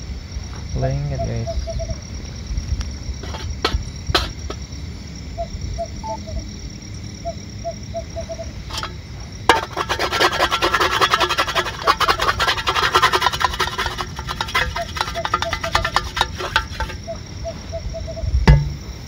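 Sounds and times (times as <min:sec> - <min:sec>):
utensil scraping a pan: 0:03.2 - 0:04.6, 0:08.7 - 0:17.1.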